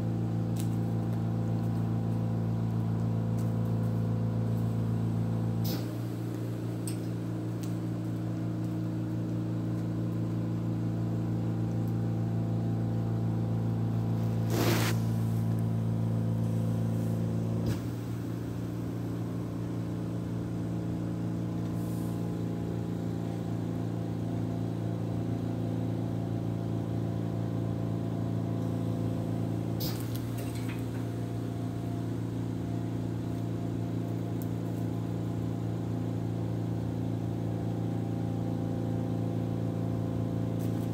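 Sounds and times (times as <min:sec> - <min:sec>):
short burst of noise: 0:14.4 - 0:15.2.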